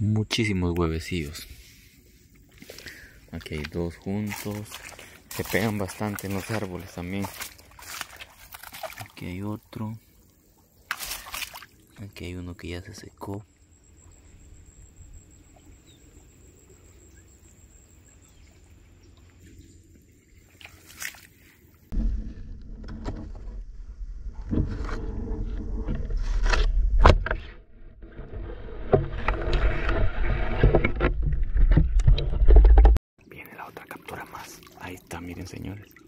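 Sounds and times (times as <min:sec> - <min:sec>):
water sloshing and splashing: 0:02.0 - 0:12.3, 0:17.4 - 0:22.0, 0:33.6 - 0:36.0.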